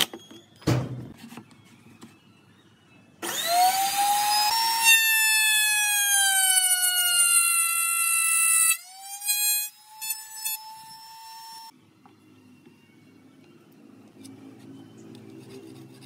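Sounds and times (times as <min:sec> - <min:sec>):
table saw motor whining: 0:03.2 - 0:11.7.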